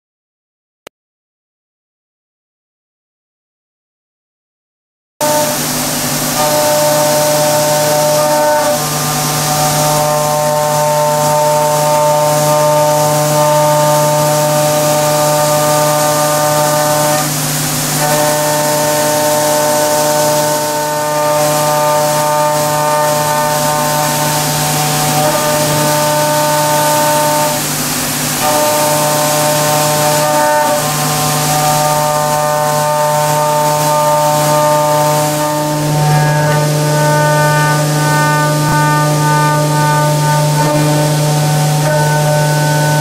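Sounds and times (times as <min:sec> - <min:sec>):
milling machine spindle whine: 0:05.2 - 0:43.0
coolant spray hiss: 0:05.3 - 0:43.0.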